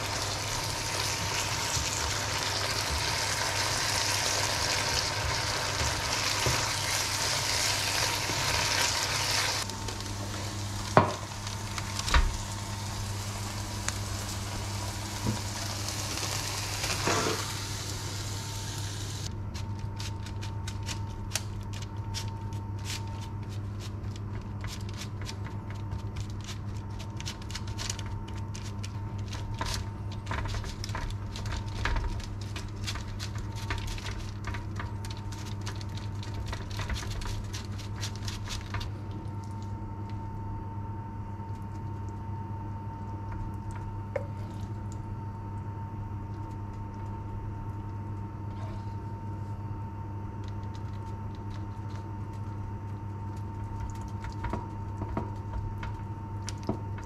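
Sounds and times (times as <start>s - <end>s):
steady low hum: 0.0s - 57.0s
fork scratching eggplant: 19.5s - 27.8s.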